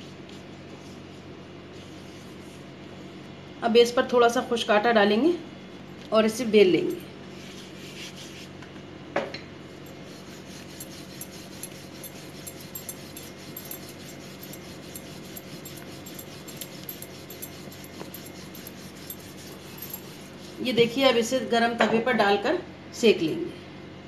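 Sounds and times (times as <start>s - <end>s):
rolling pin rolling dough: 9.9s - 21.5s.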